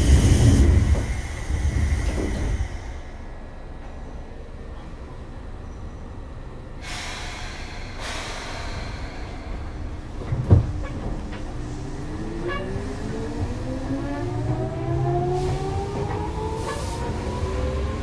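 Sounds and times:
train jolt: 0:00.0 - 0:05.9, 0:06.8 - 0:18.0
compressed-air hiss: 0:06.8 - 0:09.9.

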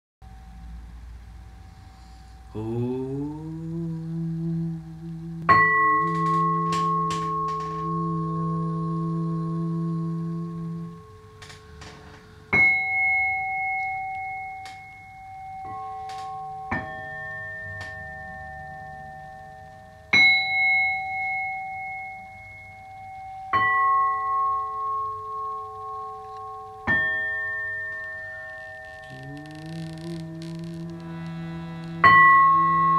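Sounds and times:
low steady drone: 0:00.2 - 0:12.6, 0:29.0 - 0:32.9
singing bowls ringing: 0:05.5 - 0:11.2, 0:12.6 - 0:24.7, 0:31.4 - 0:32.9.

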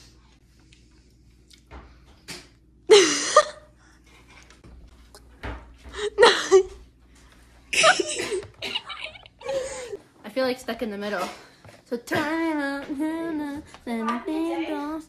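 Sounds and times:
person laughing or squealing: 0:07.8 - 0:10.0.

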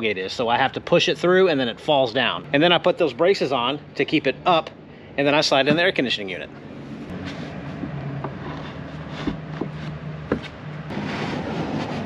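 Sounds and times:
low steady hum: 0:00.0 - 0:11.0
wood knocking on wood: 0:09.2 - 0:10.6.

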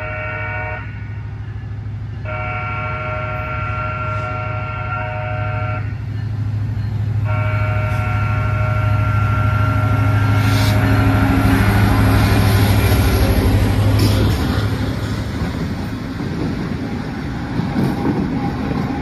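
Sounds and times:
locomotive air horn blasts: 0:00.0 - 0:01.2, 0:02.2 - 0:06.0, 0:07.2 - 0:12.6
diesel engines droning: 0:00.0 - 0:19.0.

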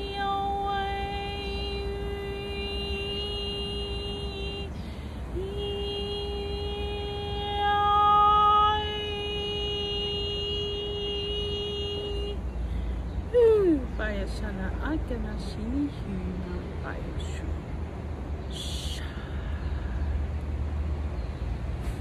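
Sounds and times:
woman singing long held note: 0:00.0 - 0:12.4
woman breathing: 0:12.6 - 0:13.1.

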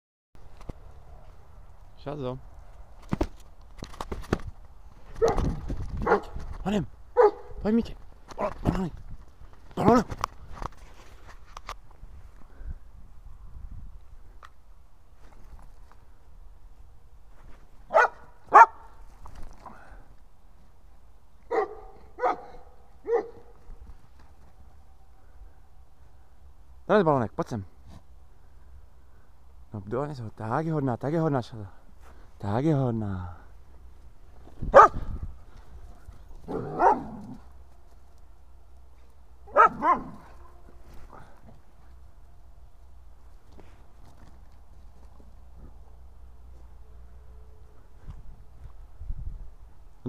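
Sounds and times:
dog barking: 0:05.2 - 0:06.4, 0:07.2 - 0:07.6, 0:17.9 - 0:18.9, 0:21.5 - 0:23.6, 0:34.7 - 0:35.0, 0:36.5 - 0:37.3, 0:39.5 - 0:40.6.

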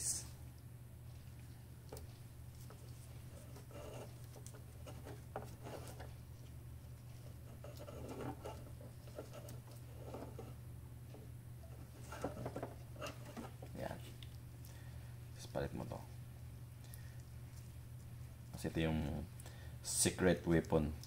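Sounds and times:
steady low hum: 0:00.0 - 0:21.0
scraping of small parts: 0:02.6 - 0:06.1, 0:07.1 - 0:10.6.

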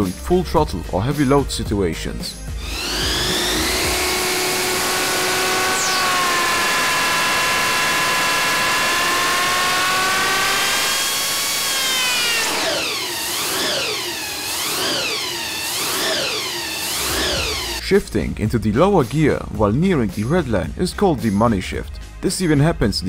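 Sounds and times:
engine revving: 0:02.5 - 0:17.8.

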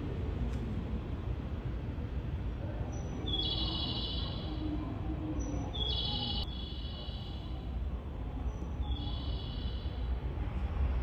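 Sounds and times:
steady low rumble: 0:00.0 - 0:03.2.

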